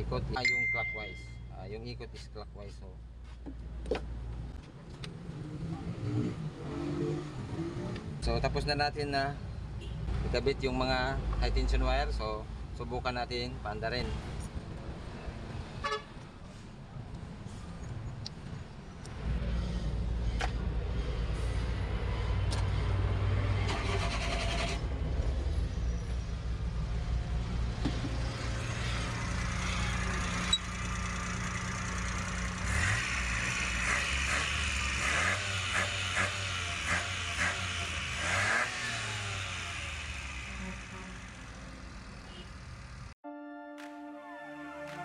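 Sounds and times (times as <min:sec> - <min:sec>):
car engine running: 0:28.6 - 0:43.1.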